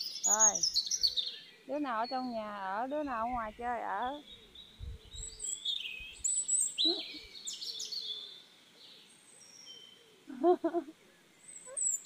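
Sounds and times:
small birds chirping: 0:00.0 - 0:12.0
short wavering bird call: 0:06.8 - 0:07.3.

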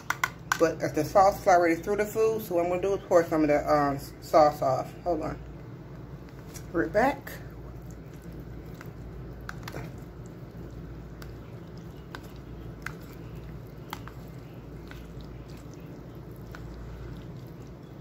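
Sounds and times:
low background hum: 0:00.0 - 0:18.0
fork stirring mac and cheese: 0:07.4 - 0:18.0.

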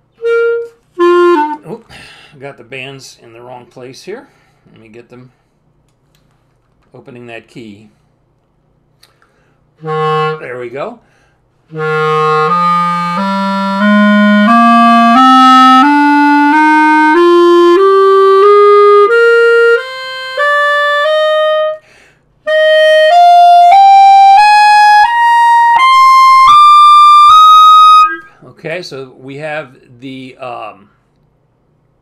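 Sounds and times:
clarinet playing a rising scale: 0:00.1 - 0:01.7, 0:09.8 - 0:10.6, 0:11.7 - 0:21.8, 0:22.5 - 0:28.4.

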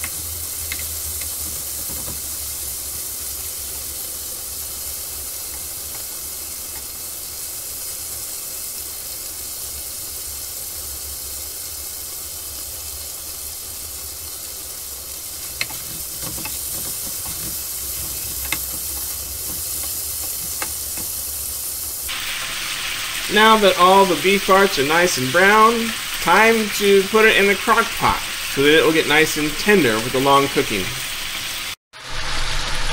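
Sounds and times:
utensil clicking against pan: 0:00.0 - 0:02.3, 0:15.4 - 0:21.2
beef sizzling in frying pan: 0:00.0 - 0:32.9.

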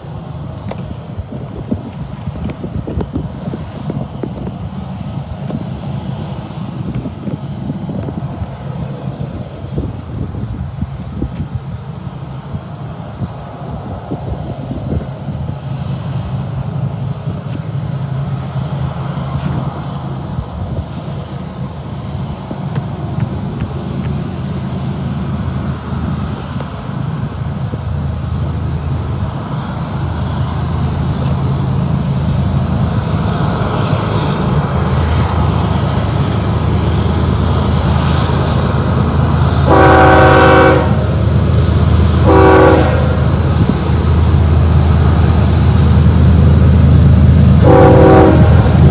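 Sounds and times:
diesel locomotive hum: 0:00.0 - 0:48.9
train horn blast: 0:39.6 - 0:41.2, 0:42.2 - 0:43.4, 0:47.6 - 0:48.9.

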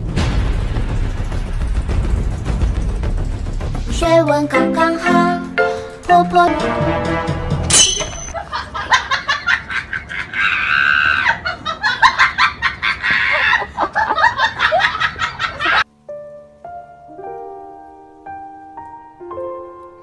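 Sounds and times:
soft piano music: 0:04.0 - 0:07.8, 0:15.8 - 0:20.0
person laughing and squealing: 0:08.1 - 0:15.8.

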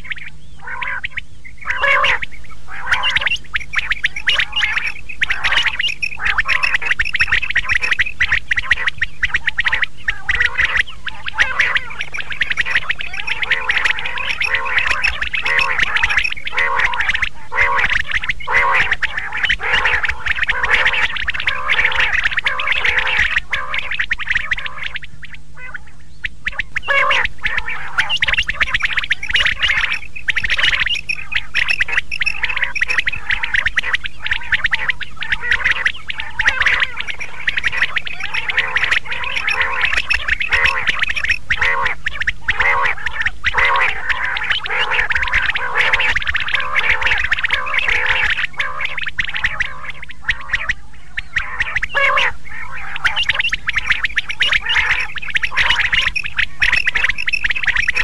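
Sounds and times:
quail calling: 0:00.0 - 0:58.0.

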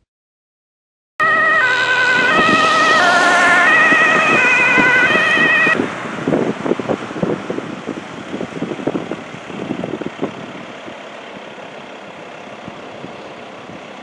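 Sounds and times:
two-tone ambulance siren: 0:01.2 - 0:05.8
road noise: 0:01.2 - 0:14.0
van engine: 0:01.2 - 0:14.0.

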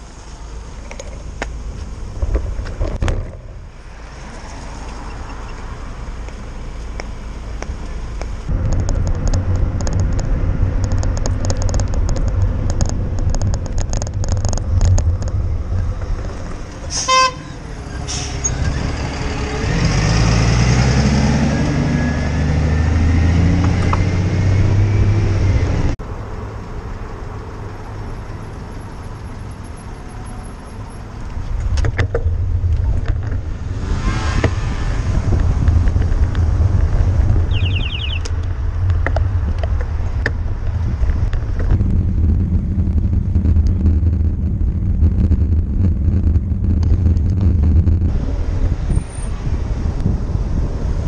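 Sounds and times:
road traffic: 0:00.0 - 0:51.0
wind rumbling on microphone: 0:00.6 - 0:26.0, 0:30.7 - 0:51.0
vehicle horn: 0:16.9 - 0:17.6
large vehicle passing close: 0:32.3 - 0:51.0.

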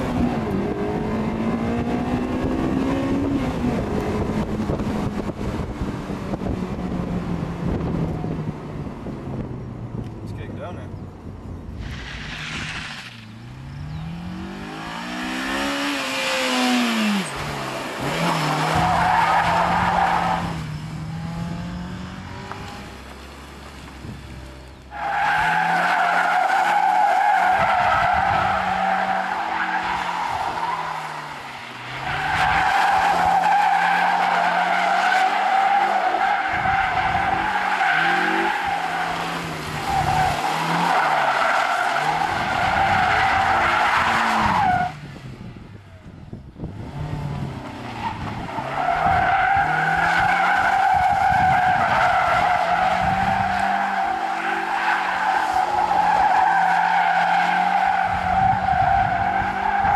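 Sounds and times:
car engine revving: 0:00.0 - 0:10.5, 0:11.7 - 0:44.9.

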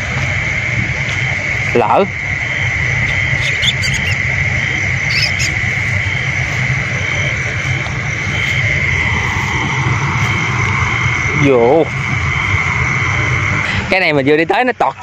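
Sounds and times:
frogs calling: 0:00.0 - 0:15.0
insects trilling: 0:00.0 - 0:15.0.

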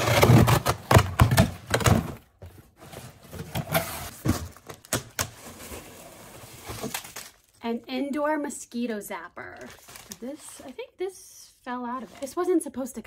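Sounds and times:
cardboard flaps scraping and thumping: 0:00.0 - 0:07.1.

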